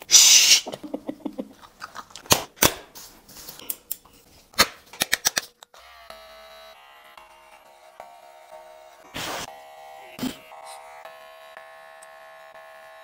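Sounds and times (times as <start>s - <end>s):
sharp clicks and snaps: 4.9s - 5.7s
hair clipper buzzing: 5.7s - 13.0s.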